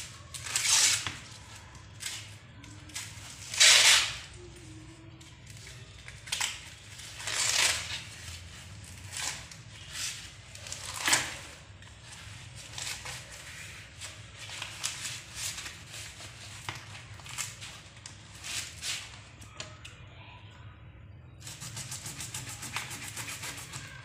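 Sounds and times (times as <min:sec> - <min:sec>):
corn husk ripping and rustling: 0:05.8 - 0:19.3.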